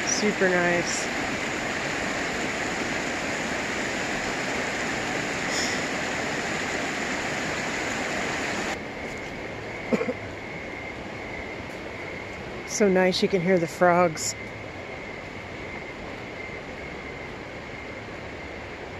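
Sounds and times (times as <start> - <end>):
high-pitched frog chorus: 0.0 - 7.0, 9.1 - 18.6
river rushing over rapids: 0.0 - 10.0.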